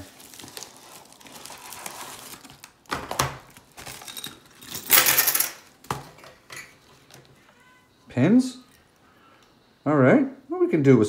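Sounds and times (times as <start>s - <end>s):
paper rustling: 0.0s - 4.2s
plastic bag crinkling: 0.0s - 5.0s
metal pins clinking: 3.8s - 5.7s.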